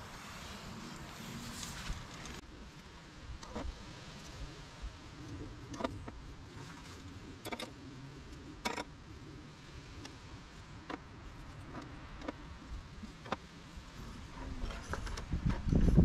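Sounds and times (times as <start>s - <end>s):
low steady background rumble: 0.0s - 16.0s.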